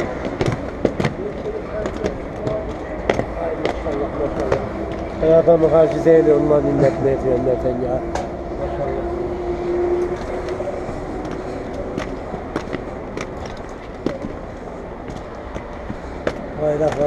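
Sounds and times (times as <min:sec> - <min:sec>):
skates knocking on stone steps: 0:00.0 - 0:05.1, 0:15.0 - 0:17.0
street noise: 0:00.0 - 0:17.0.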